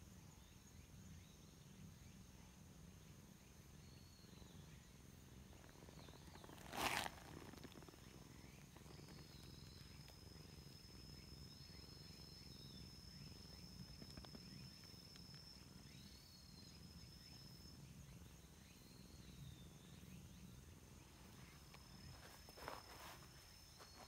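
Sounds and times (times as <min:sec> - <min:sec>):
insect trilling: 0:05.5 - 0:18.0.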